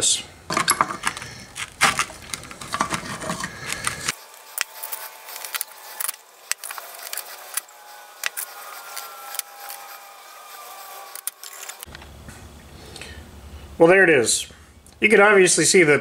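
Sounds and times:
wrench clattering on metal cap: 0:00.5 - 0:01.2.

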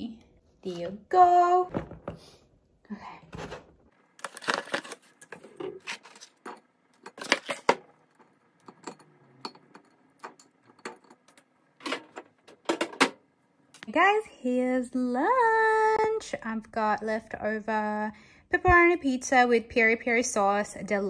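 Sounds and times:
cardboard rustling: 0:03.4 - 0:06.4.

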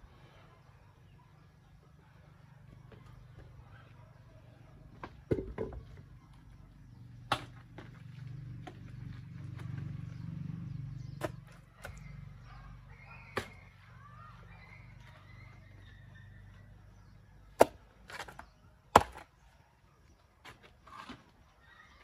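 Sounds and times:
hoe striking clay and stone: 0:17.6 - 0:19.3.

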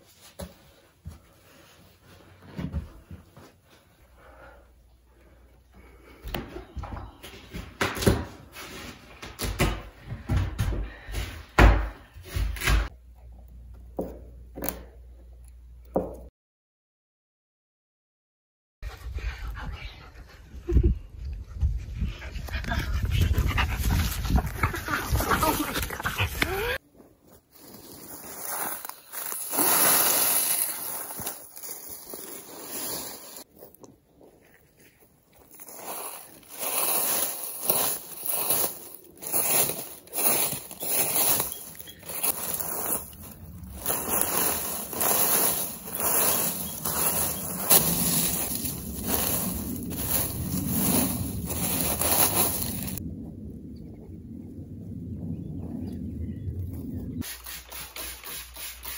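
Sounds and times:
dry leaves rustling: 0:27.2 - 0:53.0
carpet pad tearing and scraping: 0:27.6 - 0:33.5.

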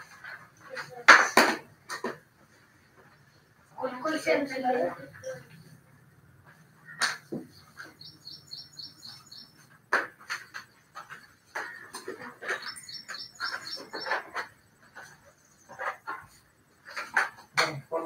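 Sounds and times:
bird chirping: 0:06.4 - 0:17.4.

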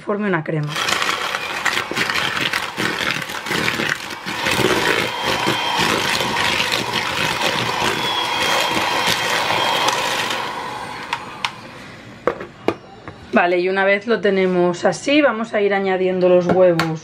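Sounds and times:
electric hand mixer whirring: 0:00.6 - 0:12.4.

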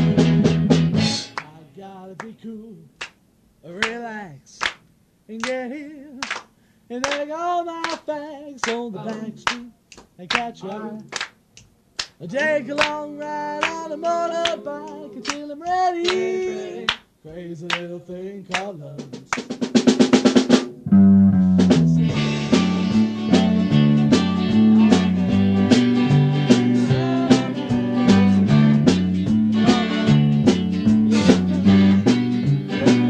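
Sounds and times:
band playing: 0:00.0 - 0:01.6, 0:12.3 - 0:16.9, 0:18.8 - 0:33.0
loose pitched notes and taps: 0:18.6 - 0:33.0
snare drum roll: 0:19.0 - 0:20.8
repeating bass line: 0:20.8 - 0:33.0.

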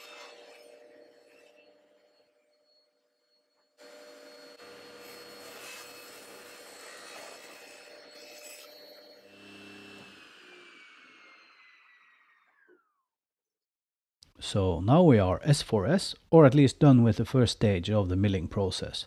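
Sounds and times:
table saw cutting board: 0:00.0 - 0:13.0.

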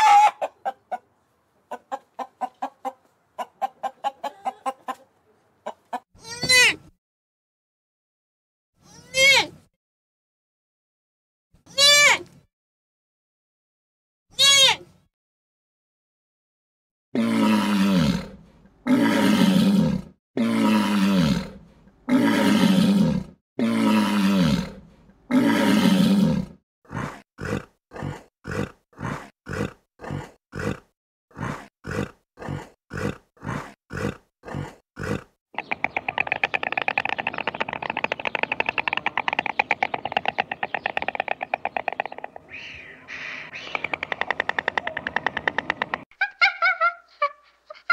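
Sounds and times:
lion roaring: 0:17.2 - 0:27.7
lion grunting: 0:17.2 - 0:35.4.

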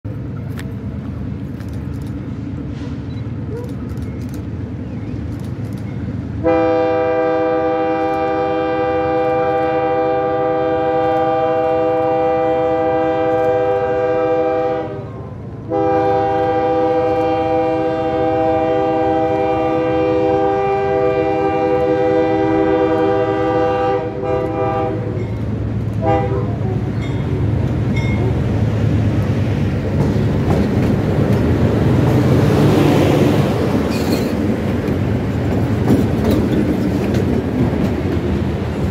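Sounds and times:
locomotive rumbling past: 0:00.1 - 0:38.9
locomotive air horn blasts: 0:06.4 - 0:25.2, 0:26.0 - 0:27.0.

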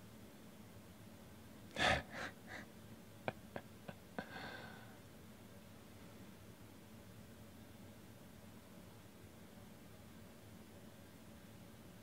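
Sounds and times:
man laughing breathily: 0:01.8 - 0:04.8.

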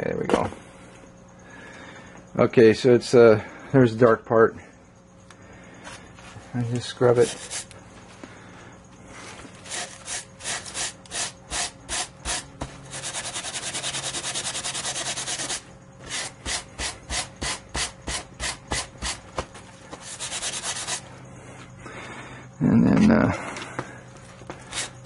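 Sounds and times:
metal sponge scrubbing metal plate: 0:11.9 - 0:15.6.

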